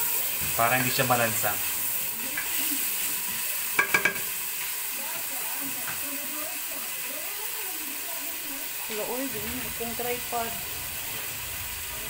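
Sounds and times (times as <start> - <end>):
meat sizzling in oil: 0.0 - 12.0
spatula knocking on pot: 3.8 - 4.3.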